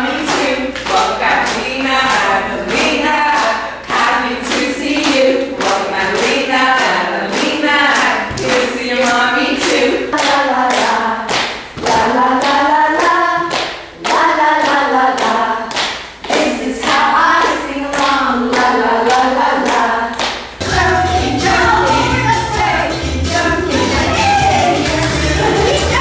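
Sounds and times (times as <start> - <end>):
group singing a children's song: 0.0 - 26.0
hand clapping in time: 24.7 - 26.0.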